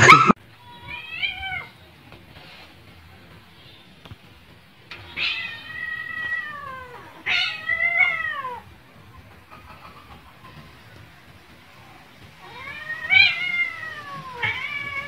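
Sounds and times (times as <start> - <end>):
cat meowing: 0.0 - 1.8, 4.9 - 8.8, 12.4 - 15.0.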